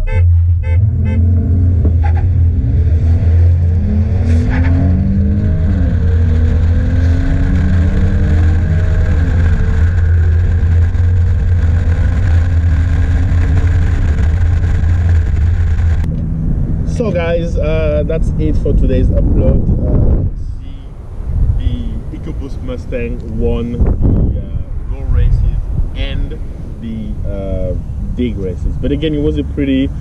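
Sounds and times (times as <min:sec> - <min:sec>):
car engines at full throttle: 0:00.0 - 0:30.0
heavy wind buffeting camera: 0:05.6 - 0:29.2.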